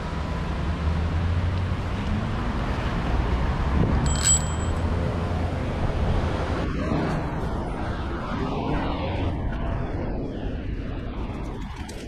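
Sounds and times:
bicycle riding rumble: 0.0 - 12.0
wind on microphone: 3.6 - 4.2, 5.0 - 12.0.

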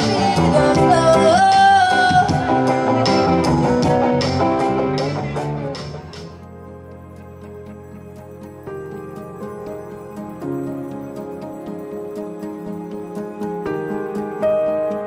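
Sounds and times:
person singing: 0.0 - 5.9
drums: 0.0 - 6.6
electric guitar: 0.0 - 15.0
soft background music: 5.2 - 15.0.

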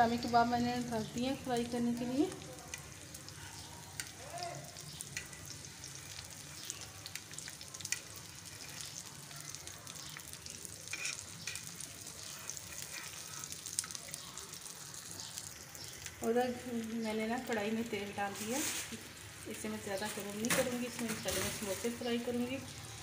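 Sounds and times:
kebabs sizzling in oil: 0.0 - 23.0
oil popping and crackling: 0.0 - 23.0
metal spatula scraping: 10.8 - 14.1.

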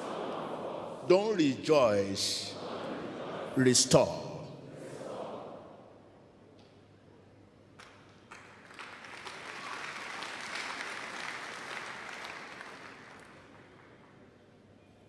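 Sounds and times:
congregation applauding: 7.8 - 14.2.

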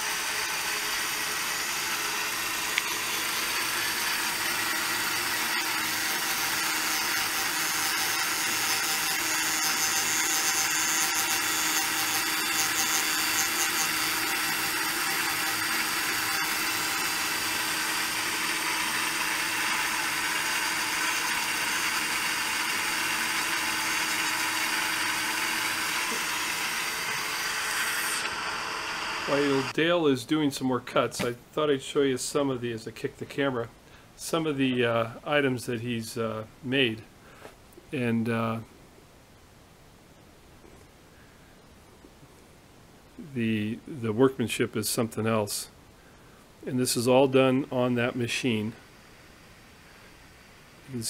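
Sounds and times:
lathe cutter whirring: 0.0 - 29.8.

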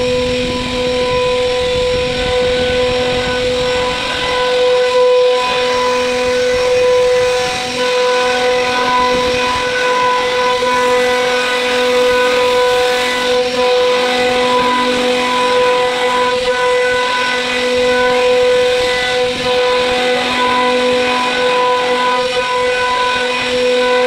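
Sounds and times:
low hum: 0.0 - 7.8
bit cutting wood rushing noise: 0.0 - 24.0
router spindle whine: 0.0 - 24.0.

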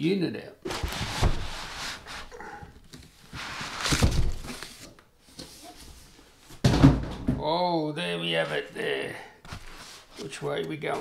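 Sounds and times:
cardboard and foam scraping: 0.7 - 2.3, 9.5 - 11.0.

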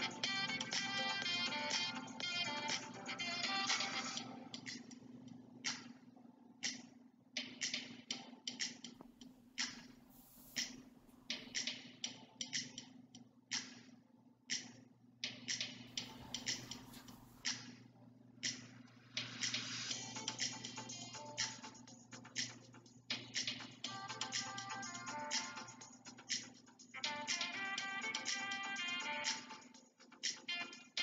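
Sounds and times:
background music: 0.0 - 6.8, 15.3 - 17.7, 18.4 - 31.0
low steady hum: 0.0 - 30.9.

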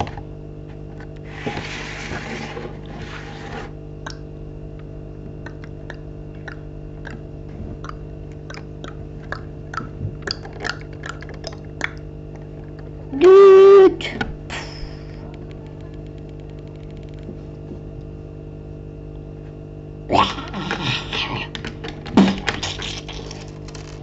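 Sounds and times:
loud held tone: 13.1 - 14.1.

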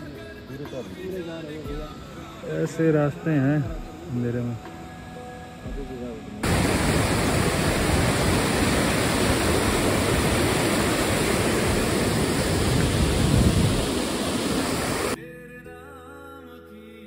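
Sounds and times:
quiet background music: 0.0 - 8.9, 15.2 - 17.0
water rushing: 6.4 - 15.2.

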